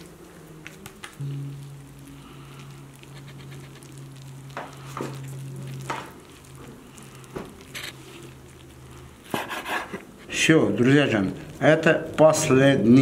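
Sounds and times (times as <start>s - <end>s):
wet smacks and squelches: 0.0s - 1.2s
light hiss: 0.0s - 10.4s
steady low hum: 0.0s - 13.0s.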